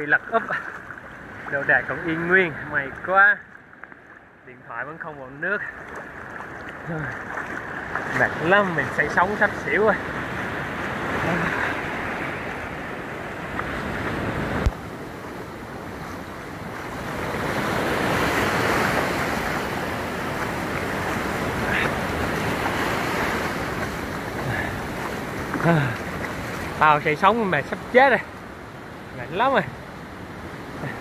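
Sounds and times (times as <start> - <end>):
waves washing onto beach: 0.0 - 31.0
wind on microphone: 10.0 - 26.8.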